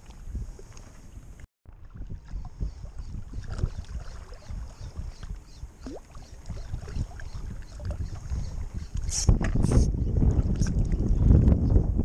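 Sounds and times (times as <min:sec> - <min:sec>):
wind buffeting microphone: 0:00.0 - 0:12.0
water lapping around rocks: 0:01.7 - 0:11.4.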